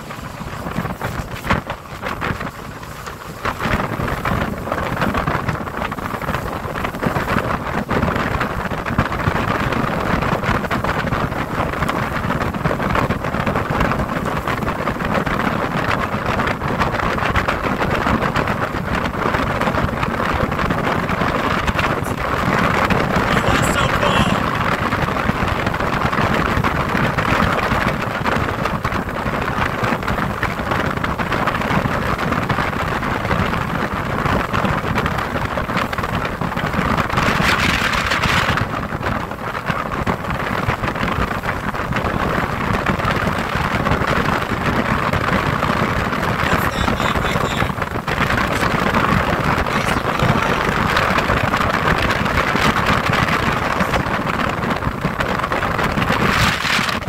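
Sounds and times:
boat motor rumble: 0.0s - 57.0s
water running along hull: 0.0s - 57.0s
wind on microphone: 0.0s - 57.0s.

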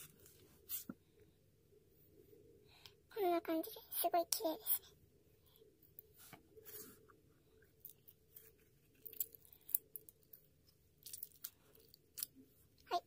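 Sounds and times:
sticky slime clicks and crackles: 11.0s - 12.4s.

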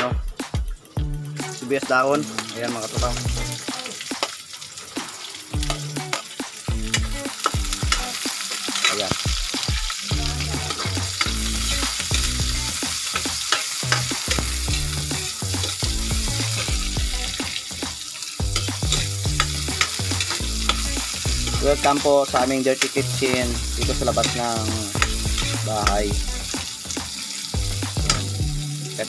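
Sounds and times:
onions sizzling in oil: 0.3s - 29.0s
metal ladle scraping a pan: 12.9s - 14.9s, 18.6s - 26.0s.

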